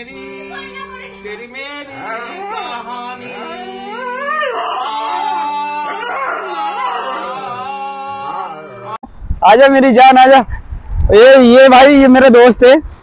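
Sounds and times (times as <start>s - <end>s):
harmonium holding notes: 0.0s - 4.4s, 5.0s - 9.0s
dog howling: 2.0s - 9.0s.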